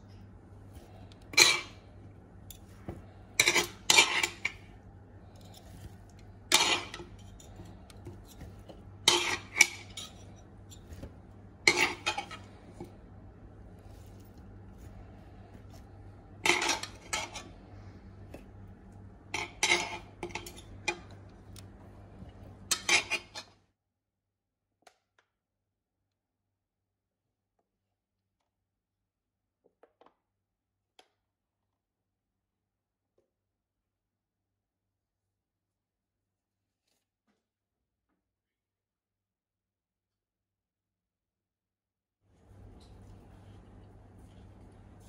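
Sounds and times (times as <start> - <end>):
low steady hum: 0.0 - 23.6, 42.4 - 45.0
cutlery clinking against ceramic bowl: 6.5 - 8.5, 9.1 - 11.0, 11.7 - 12.5, 19.3 - 21.2, 22.7 - 23.5.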